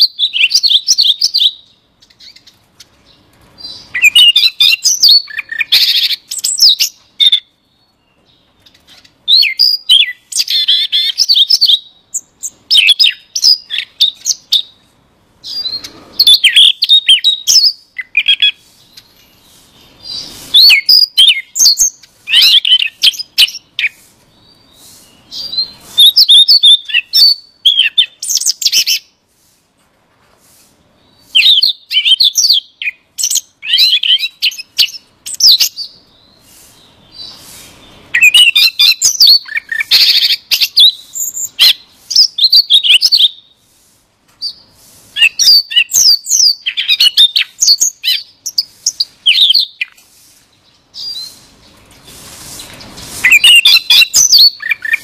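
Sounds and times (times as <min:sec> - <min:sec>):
bird singing chirps and trills: 0:00.0 - 0:29.2, 0:31.0 - 0:43.6, 0:44.4 - 0:55.0.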